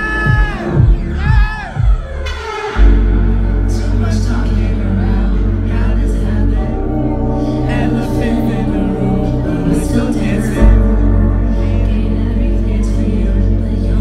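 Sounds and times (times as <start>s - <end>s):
deep bass line: 0.0s - 14.0s
house music: 0.0s - 14.0s
woman singing: 3.8s - 14.0s.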